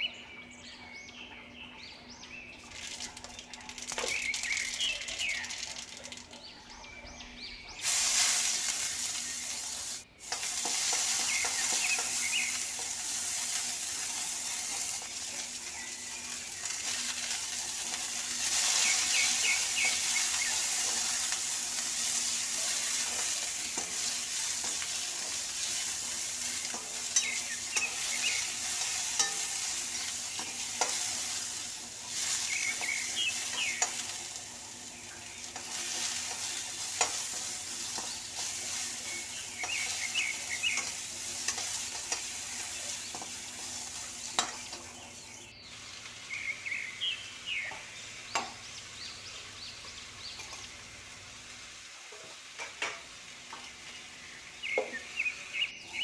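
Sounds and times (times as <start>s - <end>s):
onions sizzling in hot oil: 2.6s - 56.0s
spatula clicking against pan: 22.8s - 31.3s, 32.2s - 34.2s, 35.5s - 38.6s, 39.6s - 43.4s.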